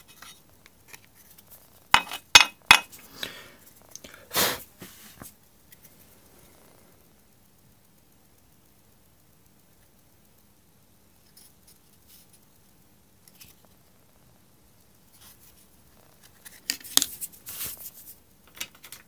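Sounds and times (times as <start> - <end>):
small objects clicking and clinking: 18.4 - 19.0.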